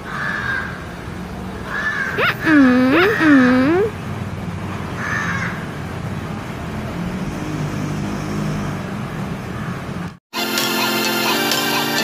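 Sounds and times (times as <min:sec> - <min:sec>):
crow cawing: 0:00.0 - 0:00.8, 0:01.7 - 0:02.2, 0:05.0 - 0:05.6.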